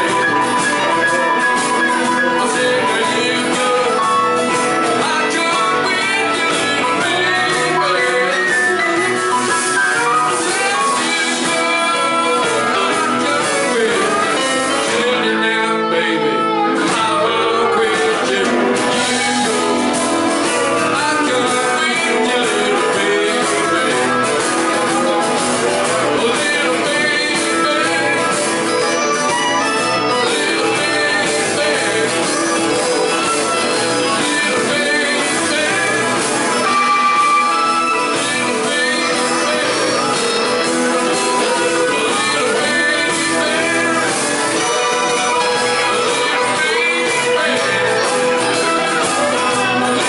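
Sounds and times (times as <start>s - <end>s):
drums: 0.0s - 50.0s
guitars: 0.0s - 50.0s
man singing lead: 0.0s - 50.0s
organ keyboard: 0.0s - 50.0s.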